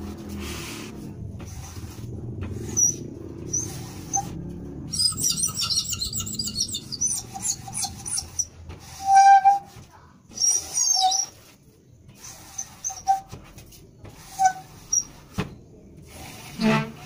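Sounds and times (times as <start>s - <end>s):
drawn-out squeal: 2.6s - 11.5s, 12.3s - 13.3s, 14.3s - 15.2s
scraper squeaking on window glass: 2.6s - 15.4s, 16.0s - 17.0s.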